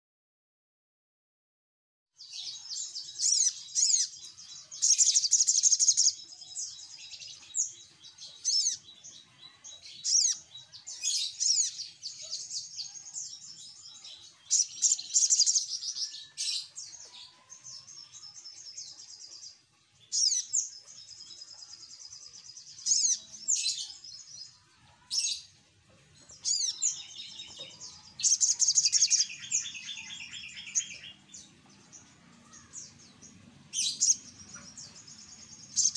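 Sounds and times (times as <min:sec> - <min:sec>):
bird chirping and trilling: 0:02.2 - 0:35.9.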